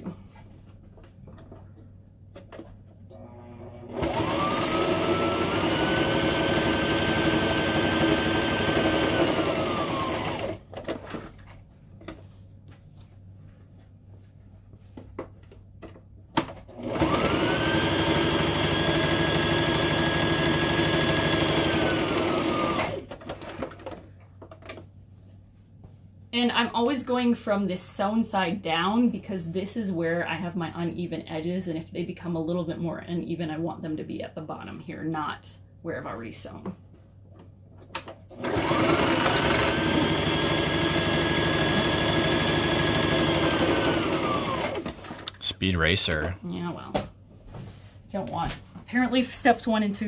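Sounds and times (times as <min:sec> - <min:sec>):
sewing machine motor whine: 0:03.2 - 0:10.6, 0:16.8 - 0:23.1, 0:38.4 - 0:44.9.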